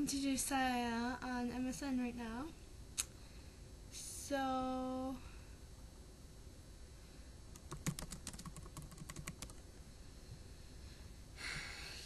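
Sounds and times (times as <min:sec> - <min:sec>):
keyboard keystroke clicks: 0:07.6 - 0:09.6.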